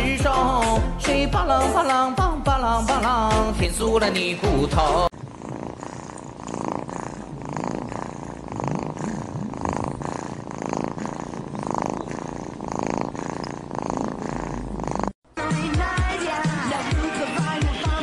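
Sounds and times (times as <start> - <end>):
cat purring: 5.0 - 15.2.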